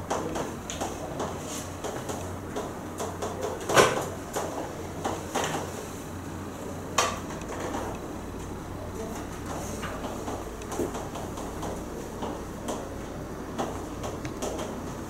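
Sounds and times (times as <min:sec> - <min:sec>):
chalk tapping and scratching on chalkboard: 0:00.1 - 0:03.6.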